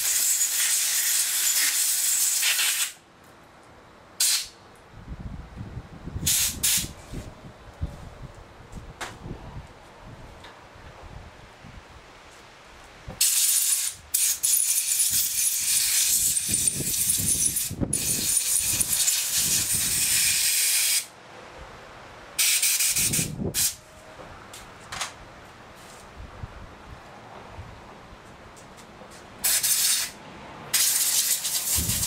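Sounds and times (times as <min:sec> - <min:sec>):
short air puffs: 0:00.0 - 0:03.0, 0:04.2 - 0:04.6, 0:06.2 - 0:07.3, 0:13.2 - 0:21.1, 0:22.4 - 0:23.8, 0:29.1 - 0:32.0
compressed air blowgun hissing: 0:06.2 - 0:07.0, 0:29.4 - 0:30.2, 0:30.8 - 0:32.0.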